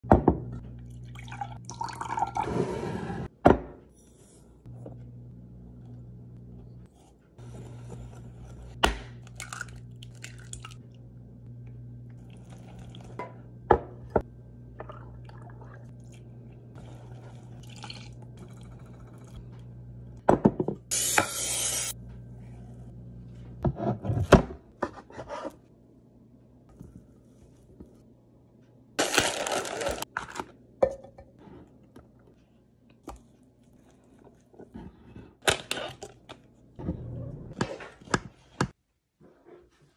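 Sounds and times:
low steady hum: 0:00.1 - 0:37.6
milk pouring into a jug: 0:17.1 - 0:18.6.

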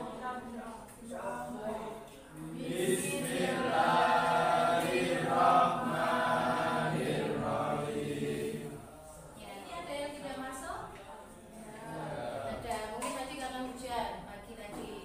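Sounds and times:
students reciting in unison: 0:00.0 - 0:09.3, 0:11.3 - 0:12.7.

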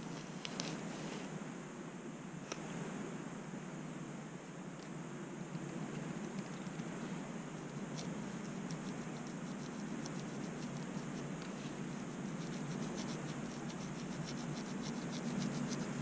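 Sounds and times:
low hum: 0:00.0 - 0:16.0
comb scratching scalp: 0:06.2 - 0:16.0.

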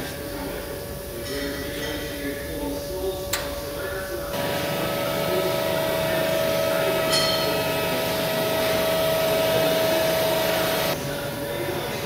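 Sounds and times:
industrial machine hum: 0:00.0 - 0:12.0
high whine: 0:03.7 - 0:11.0.

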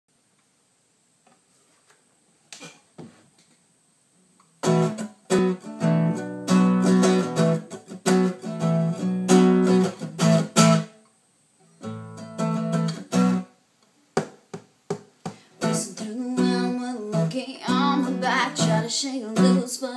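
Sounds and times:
acoustic guitar strummed: 0:04.6 - 0:11.0, 0:11.7 - 0:13.5, 0:15.4 - 0:19.9
faint taps: 0:14.2 - 0:15.5.

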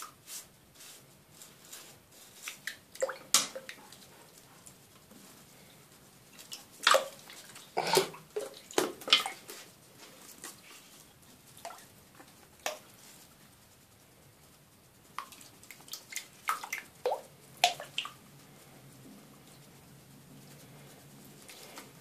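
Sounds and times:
water splashing in a basin: 0:02.6 - 0:03.8, 0:06.5 - 0:09.5, 0:15.2 - 0:18.2.

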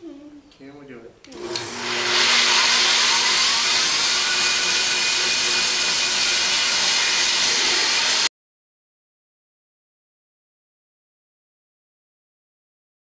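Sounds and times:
bandsaw cutting a log: 0:01.4 - 0:08.3.

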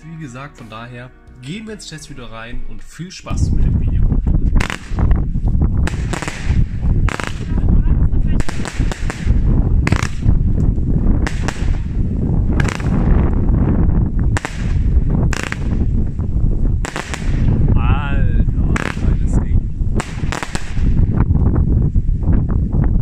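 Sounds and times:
low rumble: 0:01.3 - 0:23.0
fireworks bangs: 0:04.6 - 0:05.1, 0:05.8 - 0:10.3, 0:11.2 - 0:13.2, 0:14.3 - 0:15.9, 0:16.8 - 0:17.7, 0:18.7 - 0:19.4, 0:20.0 - 0:21.1.

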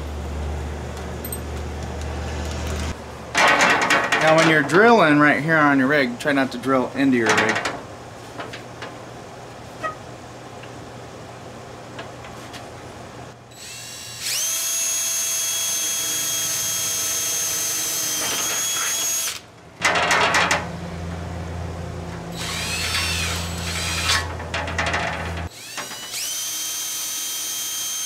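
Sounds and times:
power drill drilling: 0:13.5 - 0:19.4, 0:22.4 - 0:24.3, 0:25.5 - 0:28.0.

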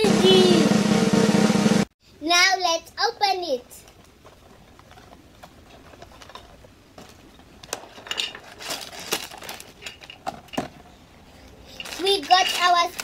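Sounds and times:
plastic bags rustling: 0:03.8 - 0:13.0
plastic bricks clattering: 0:04.8 - 0:10.9, 0:11.8 - 0:13.0.

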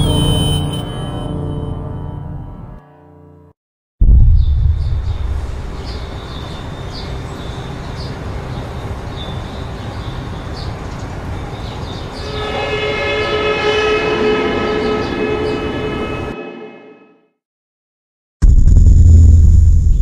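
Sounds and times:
sustained horn-like chord: 0:00.0 - 0:03.5, 0:12.2 - 0:17.4
low rumble: 0:04.0 - 0:06.3.

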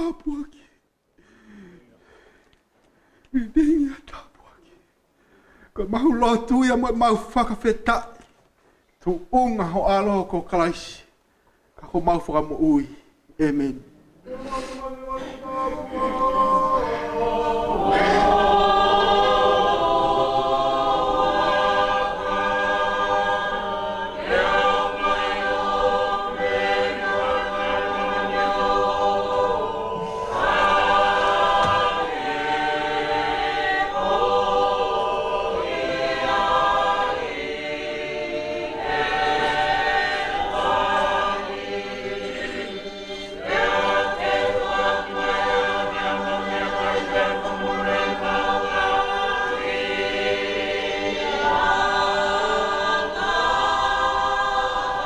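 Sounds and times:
choir singing a hymn: 0:14.2 - 0:55.0.

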